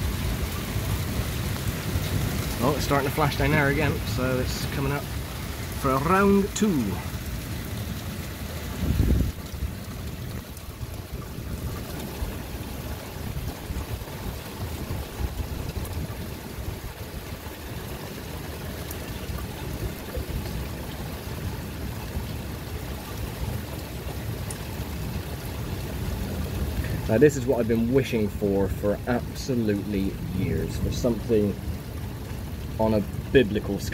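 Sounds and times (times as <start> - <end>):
heavy rain falling: 0.0 - 33.9
low rumble of thunder: 7.1 - 27.2.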